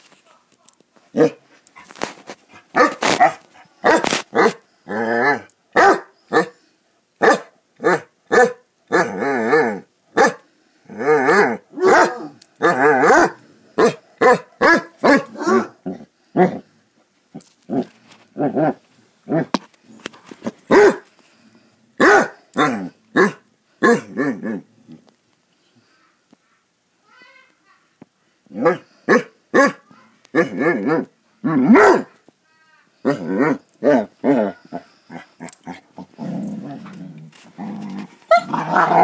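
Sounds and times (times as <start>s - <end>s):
dogs barking and howling: 11.1s - 15.8s.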